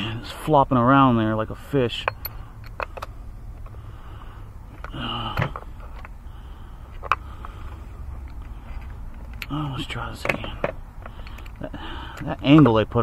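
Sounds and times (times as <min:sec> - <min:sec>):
breathy grunt: 0:04.9 - 0:05.6.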